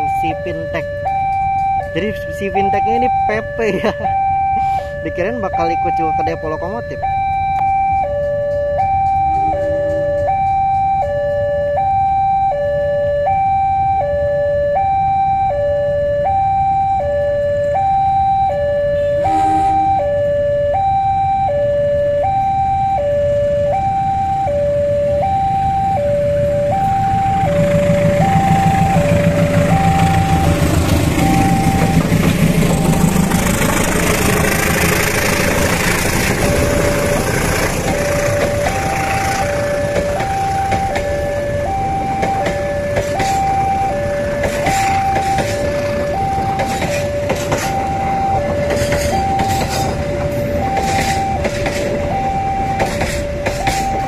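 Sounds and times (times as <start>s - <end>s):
diesel locomotive engine rumble: 0.0s - 54.0s
level crossing alarm: 0.0s - 54.0s
train wheel noise: 26.4s - 54.0s.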